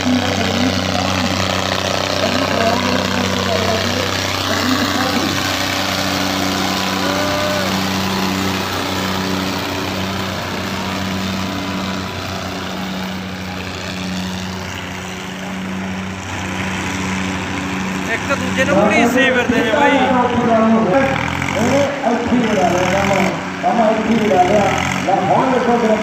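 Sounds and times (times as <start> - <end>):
tractor diesel engines droning: 0.0 - 26.0.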